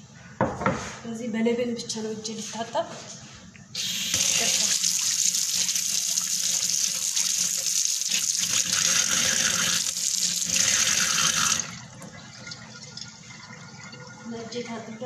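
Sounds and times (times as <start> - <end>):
tap water running: 3.8 - 15.0.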